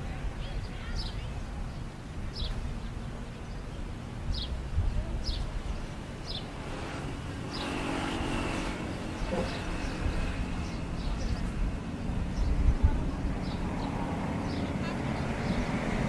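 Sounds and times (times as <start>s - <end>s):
traffic rumble: 0.0s - 16.0s
vehicle passing with high whine: 6.0s - 16.0s.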